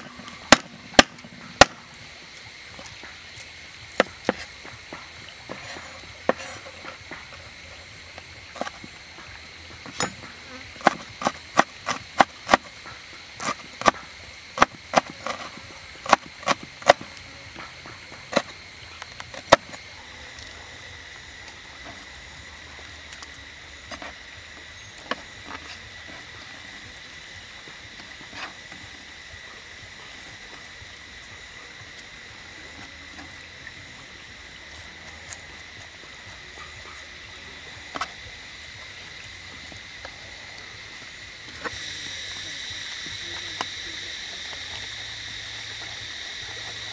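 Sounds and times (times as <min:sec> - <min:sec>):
high insect drone: 0:00.0 - 0:46.9
cleaver chopping on wooden board: 0:00.5 - 0:01.8, 0:09.9 - 0:12.7, 0:14.6 - 0:17.1.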